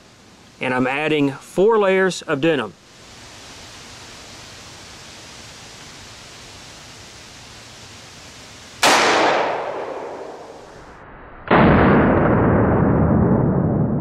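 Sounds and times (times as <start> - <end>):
loud steady rushing noise: 8.8 - 11.0
revolver gunshot: 8.8 - 14.0.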